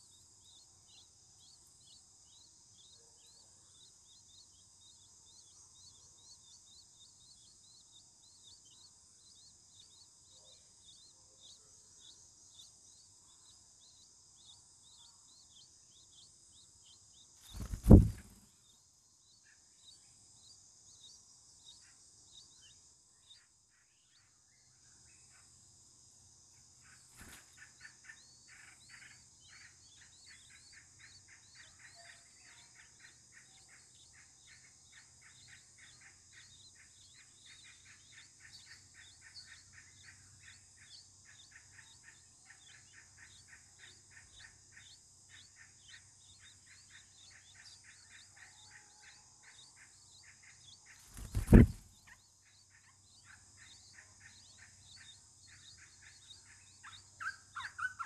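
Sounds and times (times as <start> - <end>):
nestling birds chirping: 10.8 - 18.5, 27.0 - 32.0, 49.5 - 58.0
high insect buzz: 17.4 - 18.5, 50.9 - 52.0.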